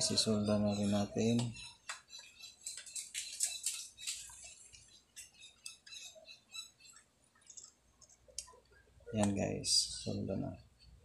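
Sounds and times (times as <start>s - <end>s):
soldering crackling and ticks: 7.0s - 8.5s.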